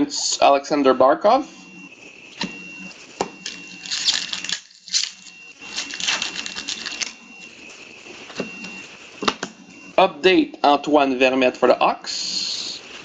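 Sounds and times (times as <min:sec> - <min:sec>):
cards clicking and rustling: 0:03.5 - 0:07.1.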